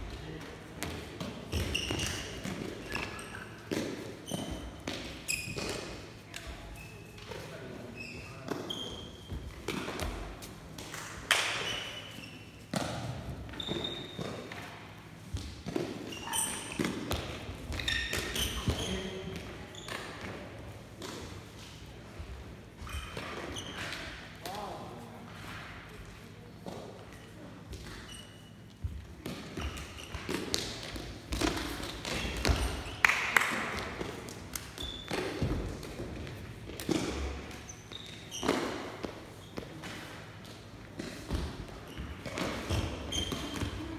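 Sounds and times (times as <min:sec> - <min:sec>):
sports shoes squeaking: 0:01.5 - 0:07.2, 0:07.9 - 0:10.4, 0:13.5 - 0:15.2, 0:15.8 - 0:20.2, 0:22.8 - 0:24.1, 0:27.8 - 0:33.0, 0:34.7 - 0:35.7, 0:36.9 - 0:39.8, 0:41.1 - 0:43.9.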